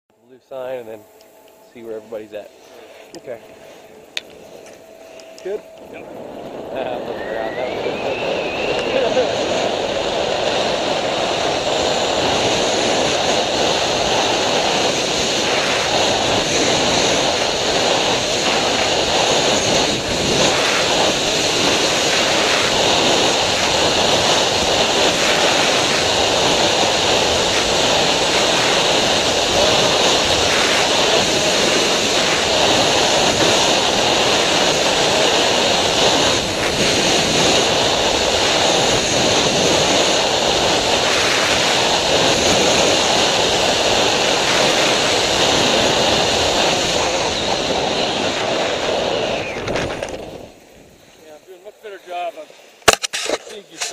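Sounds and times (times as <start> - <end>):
rushing wind on microphone: 0.1 - 53.9.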